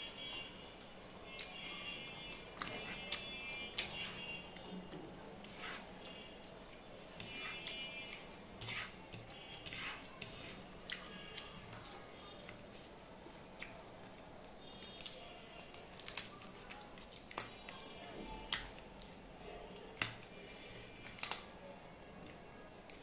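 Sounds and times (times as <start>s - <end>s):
fingers mixing rice on plate: 7.2s - 14.2s.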